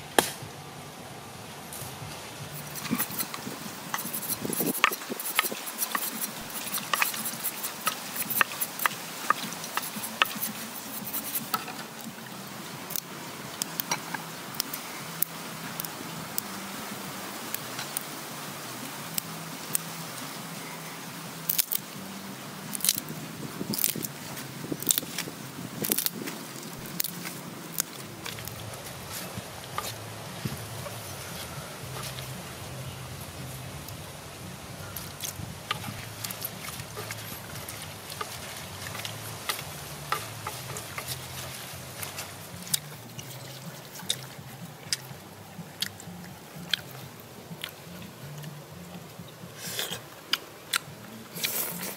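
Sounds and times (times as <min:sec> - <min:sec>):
leaves rustling and crunching: 0:00.0 - 0:51.9
low steady hum: 0:00.0 - 0:51.9
mouths chewing: 0:02.4 - 0:12.3, 0:22.7 - 0:33.0, 0:34.8 - 0:51.9
chopsticks clicking on clay pot: 0:02.6 - 0:11.8.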